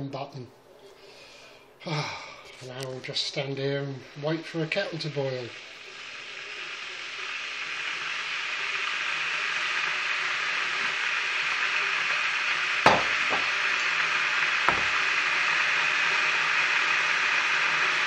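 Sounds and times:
electric kettle hissing: 0.7s - 18.0s
sharp knocks: 12.9s - 13.5s.

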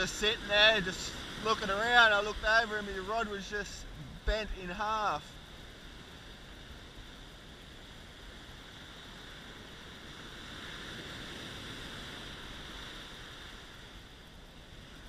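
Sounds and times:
wind on microphone: 0.0s - 4.8s
surf breaking on beach: 0.0s - 5.2s.

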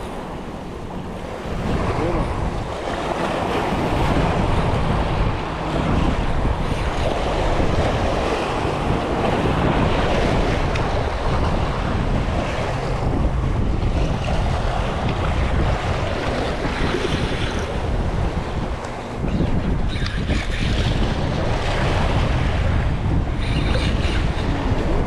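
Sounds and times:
waves washing against rocks: 0.0s - 25.0s
wind buffeting microphone: 0.0s - 25.0s.

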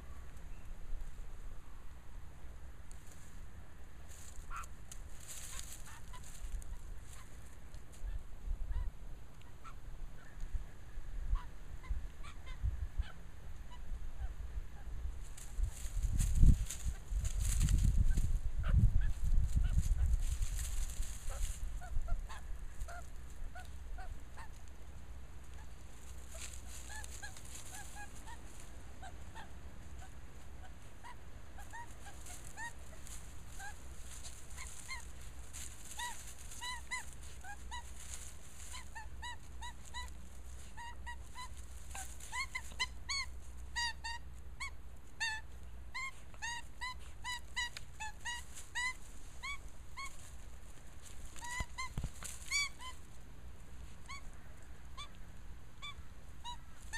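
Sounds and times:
rustling in dry leaves: 0.0s - 56.9s
magpie squawking: 4.5s - 4.7s, 26.3s - 35.2s, 35.8s - 50.3s, 51.3s - 53.0s.

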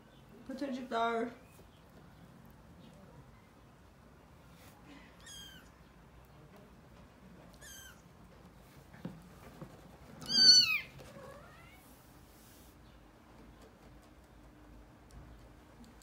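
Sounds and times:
kittens mewing: 5.0s - 5.8s.

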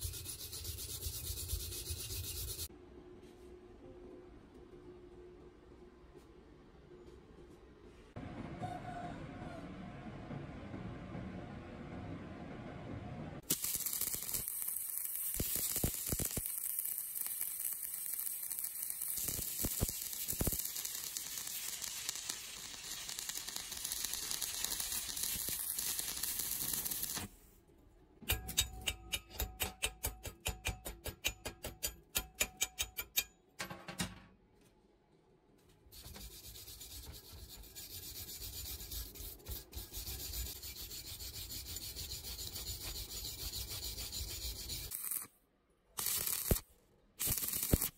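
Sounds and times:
wire brush scrubbing metal: 0.0s - 2.7s, 36.0s - 45.2s
welding arc crackling: 13.4s - 27.3s, 44.8s - 45.3s, 46.0s - 47.9s.

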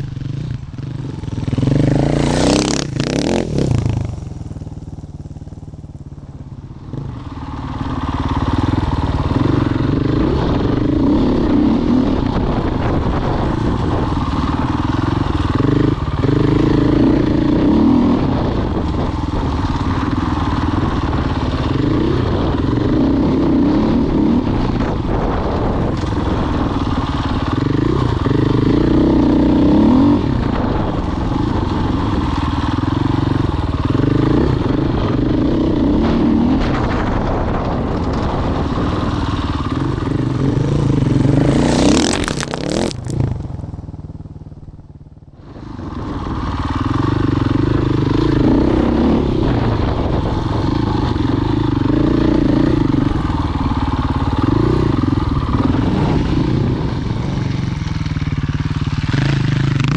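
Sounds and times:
motorcycle engine revving: 0.0s - 59.9s
gravel spraying: 36.6s - 43.4s.

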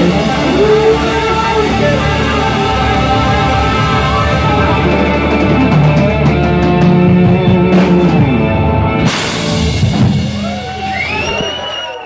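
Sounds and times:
rock band playing loudly: 0.0s - 12.0s.

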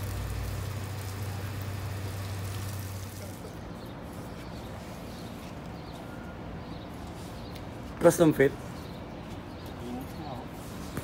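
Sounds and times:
water spraying from a hose: 0.0s - 3.7s.

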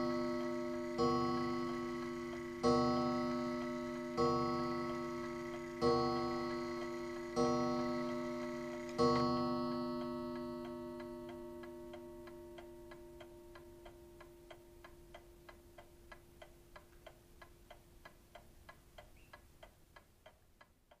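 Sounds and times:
clock gong ringing: 0.0s - 14.5s
clock ticking: 0.0s - 21.0s.

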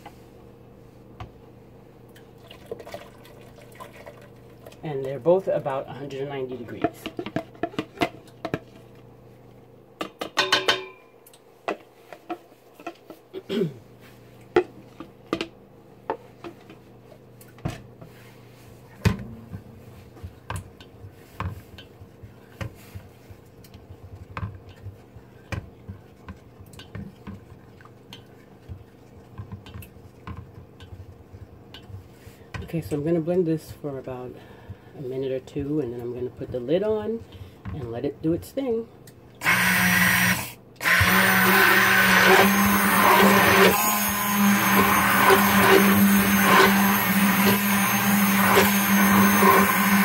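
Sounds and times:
blender head knocking pot: 39.4s - 50.0s
stick blender humming: 39.4s - 50.0s.

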